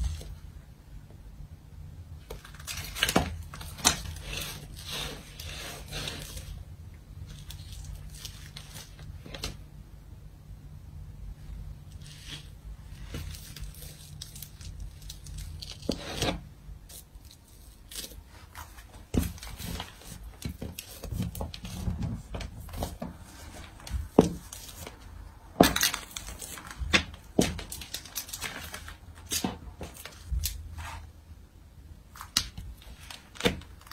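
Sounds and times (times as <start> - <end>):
paper crinkling: 7.3 - 9.6, 12.0 - 31.0.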